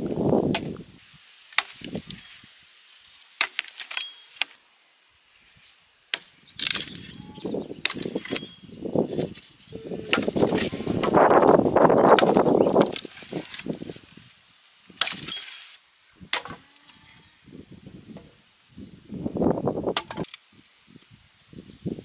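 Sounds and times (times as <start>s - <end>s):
axe chopping branches: 1.5s - 2.0s, 3.4s - 4.6s, 6.1s - 7.1s, 7.8s - 8.5s, 10.1s - 13.9s, 14.9s - 16.9s.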